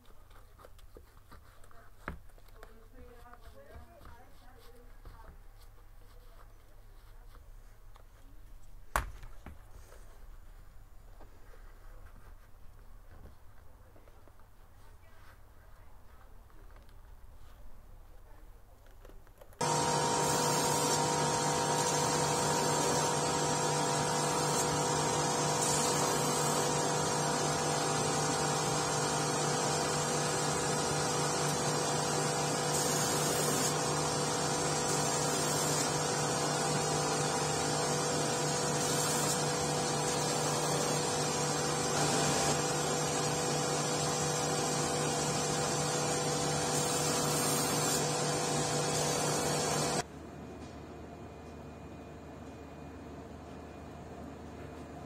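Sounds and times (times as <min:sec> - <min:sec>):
abrasive wheel grinding hiss: 0:19.6 - 0:50.0
machine motor hum: 0:19.6 - 0:50.0.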